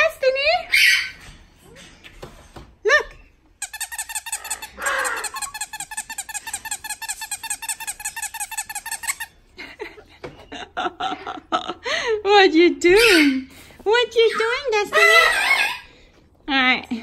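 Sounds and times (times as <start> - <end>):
rubber squeaky toy squeaking: 3.6 - 9.4, 12.9 - 13.5, 14.2 - 15.8.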